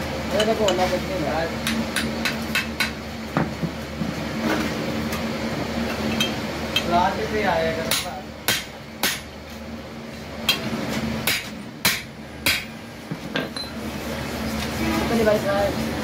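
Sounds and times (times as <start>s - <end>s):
hammer striking steel: 7.9s - 9.3s, 11.2s - 12.7s.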